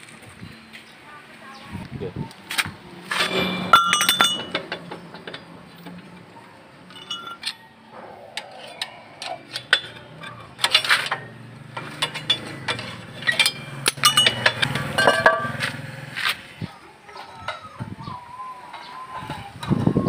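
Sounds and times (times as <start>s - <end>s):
metallic ringing: 3.0s - 16.1s
metal brake drum clinks and knocks: 3.1s - 7.7s, 9.2s - 15.9s.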